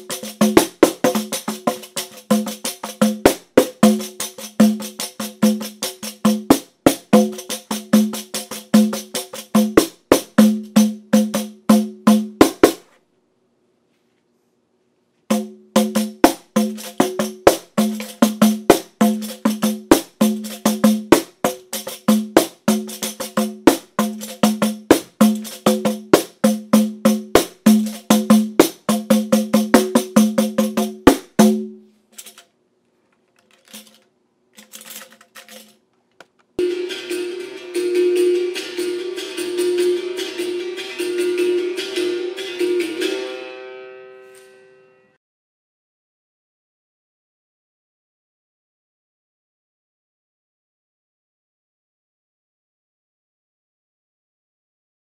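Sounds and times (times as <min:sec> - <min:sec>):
hand drum with jingles: 0:00.0 - 0:12.8, 0:15.3 - 0:31.8, 0:36.6 - 0:43.2.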